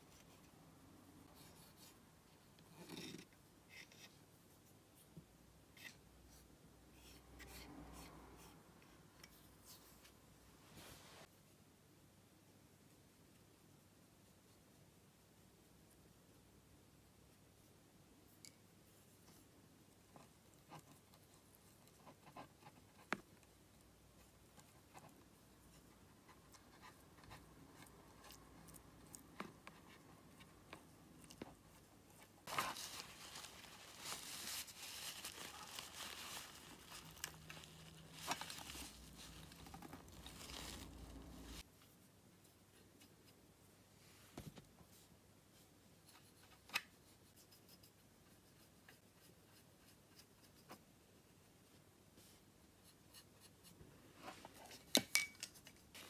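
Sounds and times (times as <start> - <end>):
paper tissue crinkling: 32.4 - 41.6.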